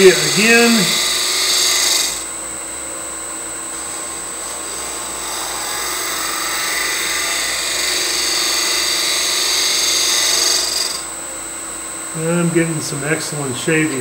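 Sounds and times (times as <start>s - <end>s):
lathe humming: 0.0s - 14.0s
scraper scraping wood: 3.7s - 10.8s.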